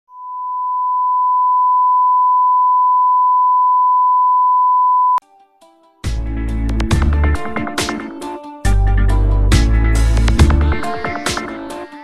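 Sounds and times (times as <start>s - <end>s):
steady test tone beep: 0.1s - 5.2s.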